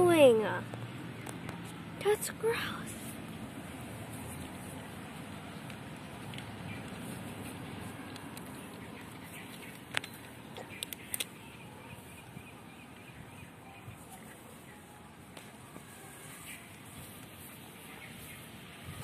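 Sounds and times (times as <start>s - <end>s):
sharp clicks: 8.1s - 11.4s.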